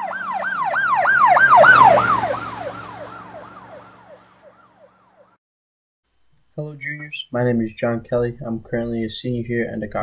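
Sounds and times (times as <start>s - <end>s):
low vehicle rumble: 0.0s - 4.8s
emergency siren yelping: 0.0s - 5.4s.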